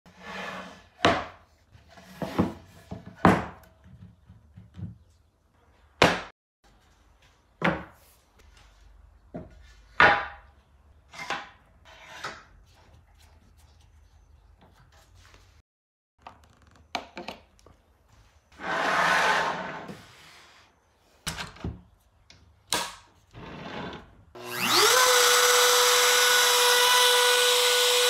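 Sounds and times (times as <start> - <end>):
wood scraping: 18.6 - 20.7.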